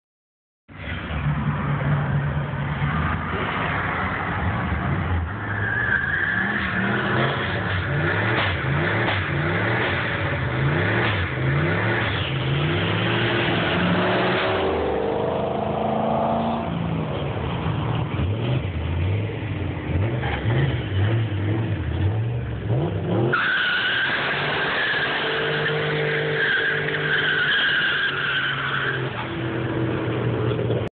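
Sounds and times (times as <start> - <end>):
car engine revving: 6.4 - 30.9.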